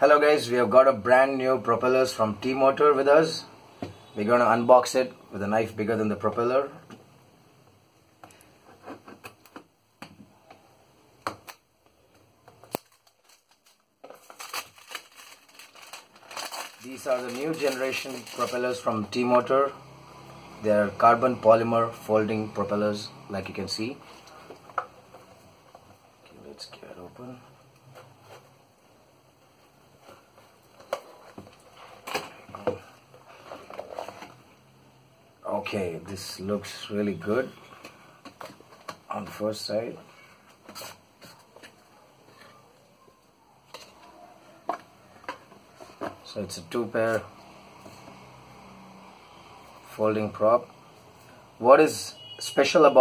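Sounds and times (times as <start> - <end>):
plastic wrap crinkling: 12.5 - 19.0
cardboard rustling scrapes: 13.2 - 18.9, 30.0 - 34.4.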